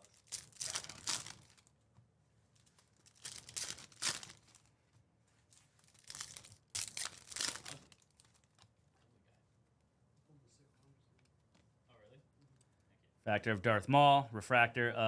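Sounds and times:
foil wrapper crinkling and tearing: 0.0 - 1.7, 2.7 - 4.7, 5.7 - 8.6.

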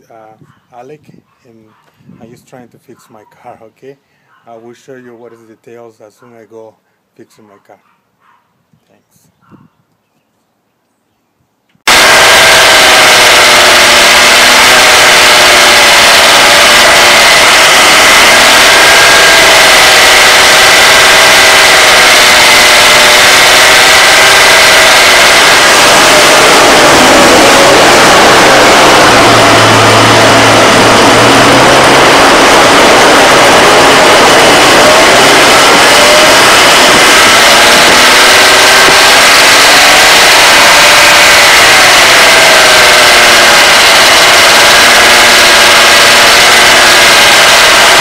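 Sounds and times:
car engine idling and revving: 11.9 - 48.0.

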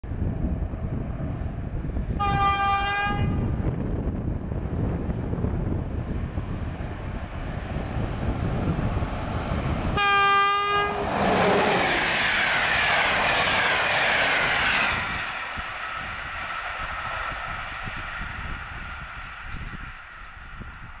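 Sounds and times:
train passing: 0.1 - 21.0
train horn blast: 2.2 - 3.5, 10.0 - 11.8.

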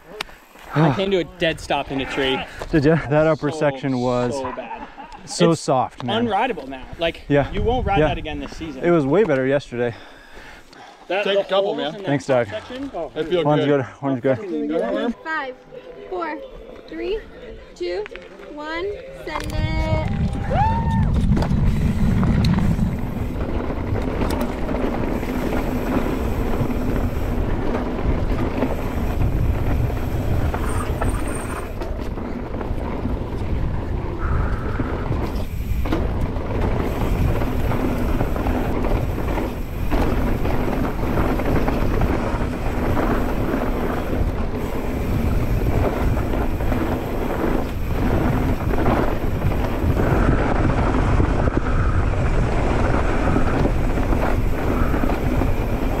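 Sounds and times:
wind rush on microphone: 6.9 - 8.8, 19.2 - 56.0
tyres rumbling on dirt: 19.5 - 56.0
bike clattering over bumps: 20.9 - 56.0.

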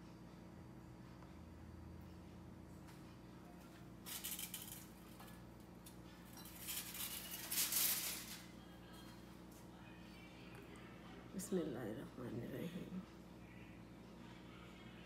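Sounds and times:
faint steady hum: 0.0 - 15.0
kitchen utensils rattling and scraping: 4.0 - 9.0.

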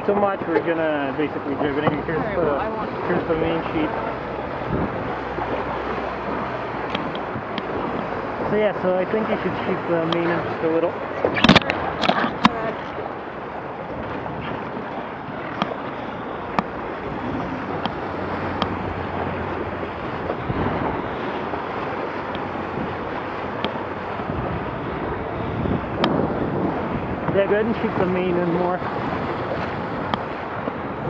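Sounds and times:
water rushing past hull: 0.0 - 31.0
wind buffeting microphone: 0.0 - 31.0
rigging clicks and knocks: 11.2 - 12.6.

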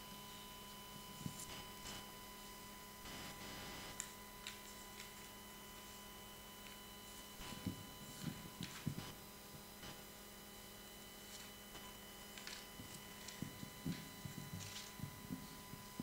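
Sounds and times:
electrical hum: 0.0 - 16.0
papers rustling: 3.9 - 9.2, 11.2 - 16.0.

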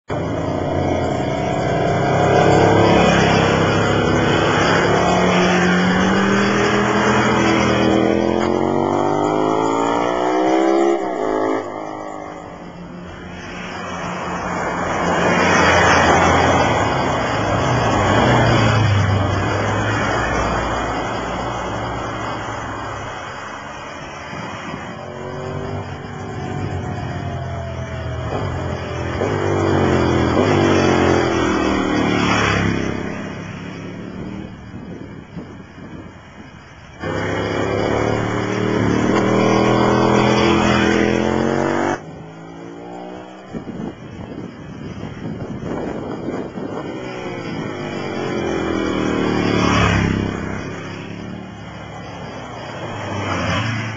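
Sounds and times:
motorcycle engine accelerating: 37.0 - 43.6.

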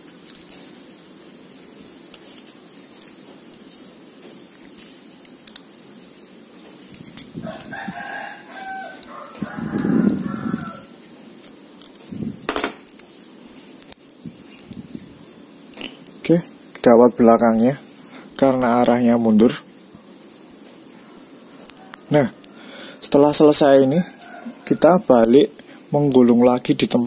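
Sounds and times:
blade scraping wire: 1.9 - 15.0
rooster crowing: 7.3 - 11.0, 21.0 - 25.2.

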